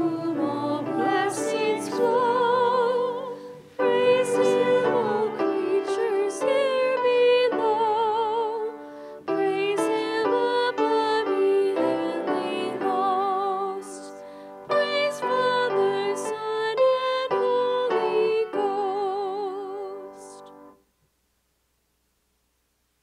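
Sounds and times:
instrumental accompaniment: 0.0s - 13.6s
person singing with vibrato: 0.0s - 20.6s.

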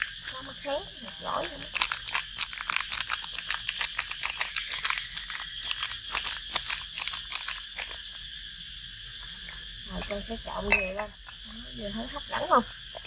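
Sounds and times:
wet squishing of eels mixed by hand: 0.0s - 8.3s
insects trilling: 0.0s - 13.0s.

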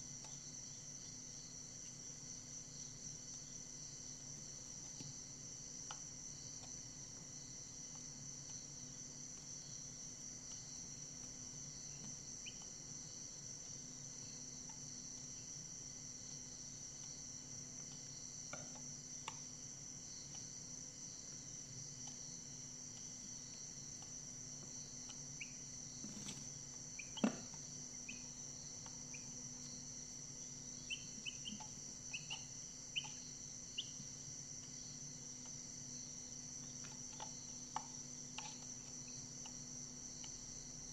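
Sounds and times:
chicks peeping: 27.0s - 29.4s, 30.8s - 34.0s.

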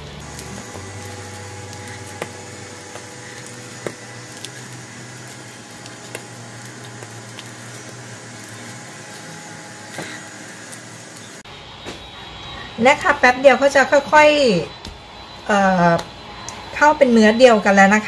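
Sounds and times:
dough squishing while kneaded: 0.0s - 11.4s
steady low hum: 0.0s - 18.0s.

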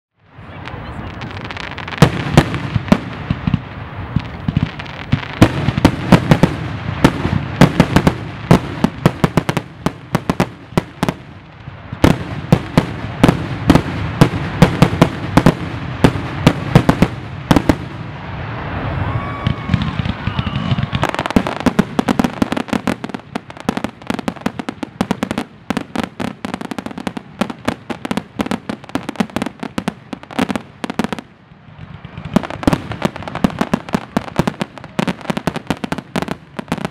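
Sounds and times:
fireworks crackle: 0.2s - 36.9s
continuous rumble: 27.2s - 36.9s.

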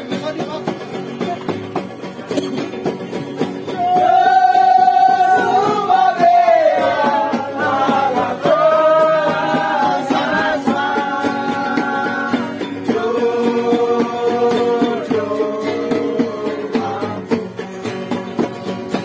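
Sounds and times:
acoustic guitars strummed: 0.0s - 19.0s
men singing together: 3.8s - 18.9s.

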